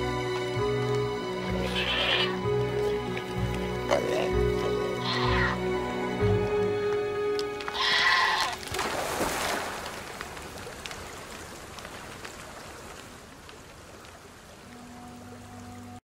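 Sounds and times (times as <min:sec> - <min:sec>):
background music: 0:00.0 - 0:08.7, 0:14.6 - 0:16.0
bleat-like animal call: 0:01.6 - 0:02.4, 0:03.9 - 0:05.6, 0:07.7 - 0:08.6.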